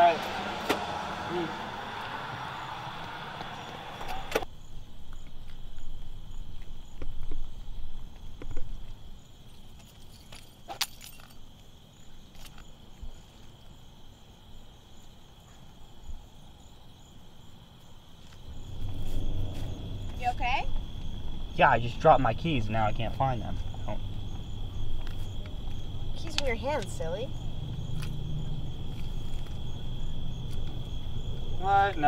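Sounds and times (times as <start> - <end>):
crickets chirping: 0.0 - 32.0
keys dropping with a clink: 9.6 - 11.4
footsteps: 18.2 - 21.5.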